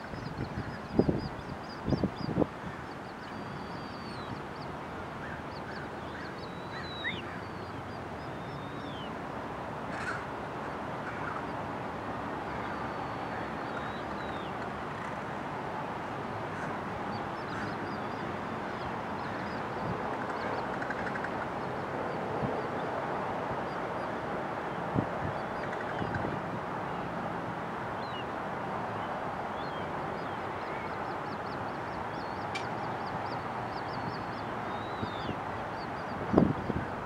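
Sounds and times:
outdoor rush of noise: 0.0s - 37.0s
birds whistling: 3.2s - 4.4s, 5.6s - 9.1s, 32.2s - 36.1s
caw-like bird calls: 9.9s - 10.3s.

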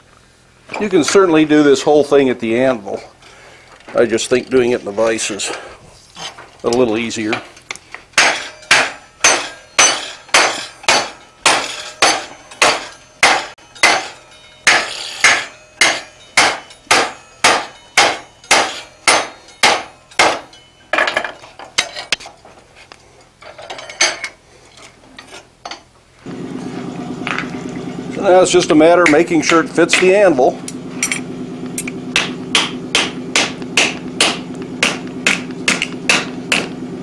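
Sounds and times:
hammer striking hot steel: 8.1s - 21.4s, 28.1s - 36.9s.

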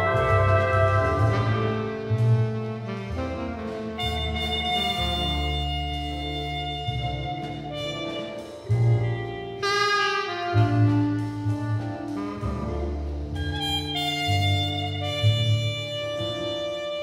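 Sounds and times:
horns holding long notes: 0.0s - 8.5s
jazz quintet playing: 0.0s - 17.0s
low bass line: 0.0s - 17.0s.

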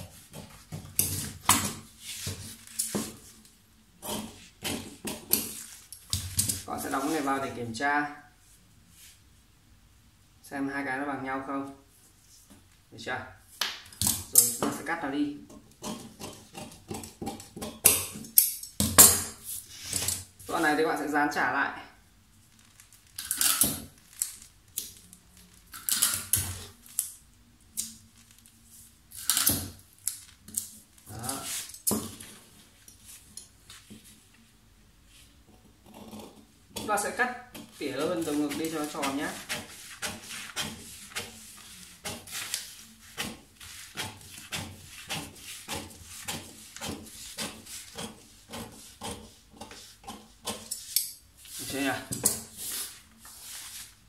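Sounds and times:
paper rustling and crinkling: 0.2s - 3.5s, 5.4s - 7.4s, 22.4s - 27.0s, 37.6s - 48.6s, 51.4s - 54.0s.

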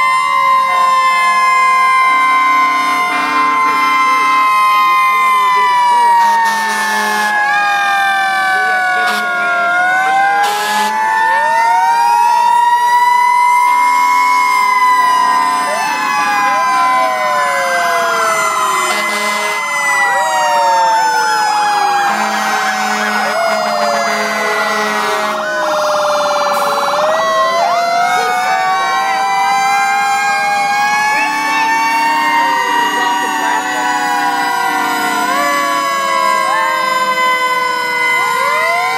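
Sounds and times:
fire truck sirens wailing: 0.0s - 38.9s
short low horn blasts: 2.2s - 4.4s, 18.9s - 19.6s, 22.1s - 25.4s.

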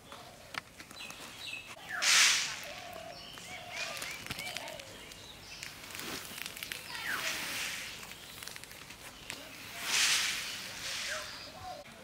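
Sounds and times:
bird chirps: 0.9s - 11.8s
rice grains pouring: 9.6s - 11.5s.

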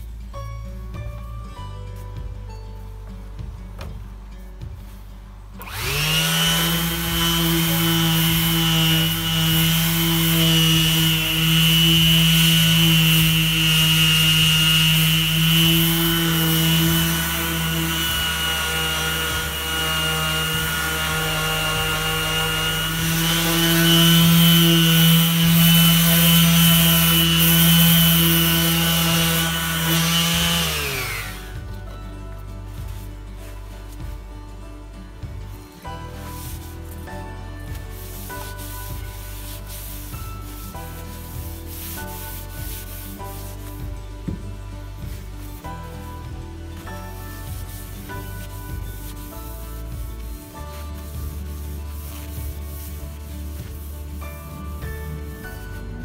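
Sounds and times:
electric orbital sander whining: 5.6s - 31.8s.

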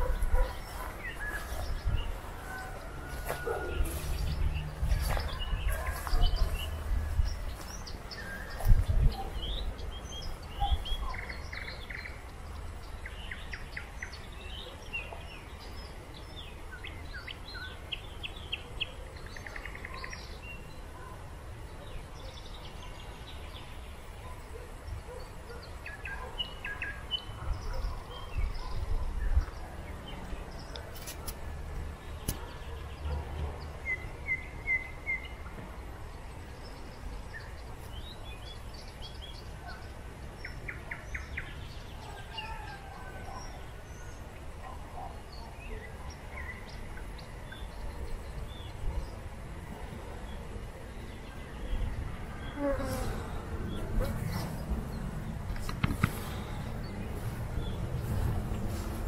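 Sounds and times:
songbirds chirping and singing: 0.0s - 59.0s
steady low rumble: 53.4s - 59.0s.

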